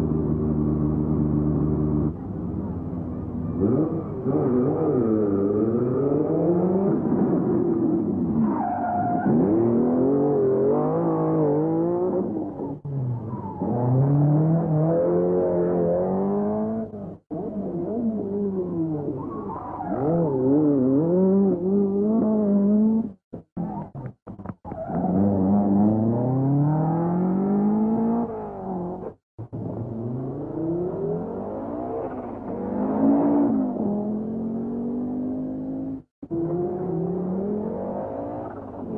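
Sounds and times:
rally car engine accelerating: 0.0s - 38.9s.

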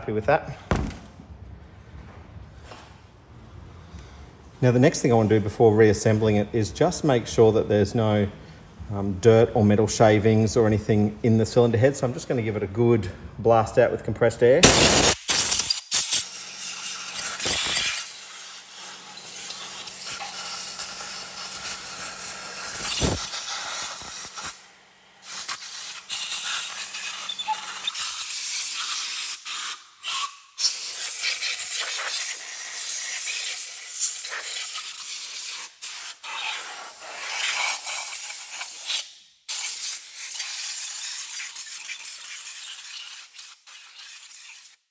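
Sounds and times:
compressed air blow gun hissing: 14.6s - 24.6s, 25.2s - 44.8s.

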